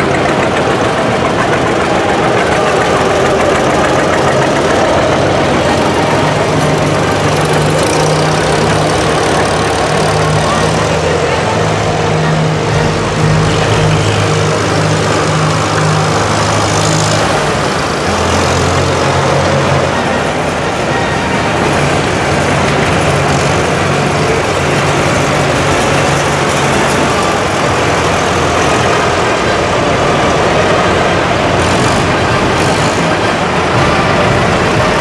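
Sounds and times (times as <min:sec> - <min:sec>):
tractor engines droning: 0:00.0 - 0:35.0.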